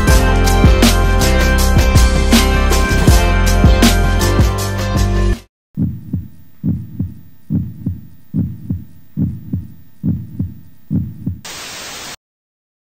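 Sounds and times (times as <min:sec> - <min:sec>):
heartbeat thumps: 0:05.8 - 0:11.5.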